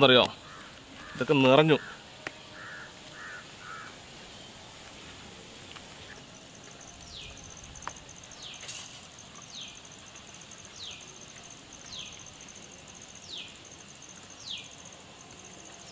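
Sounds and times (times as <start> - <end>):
insect trilling: 0.0 - 4.6, 5.8 - 15.9.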